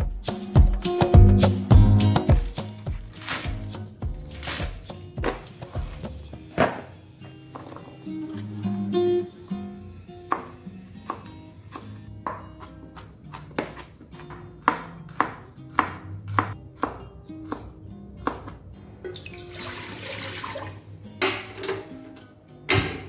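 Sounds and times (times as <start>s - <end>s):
knife chopping on plastic board: 10.3s - 18.6s
water poured into metal pot: 19.1s - 20.9s.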